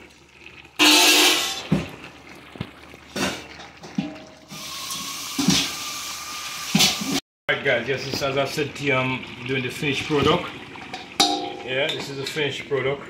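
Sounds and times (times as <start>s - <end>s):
metal pot lid clattering: 3.2s - 5.8s, 10.9s - 12.4s
cookware knocking on stove: 11.2s - 11.6s.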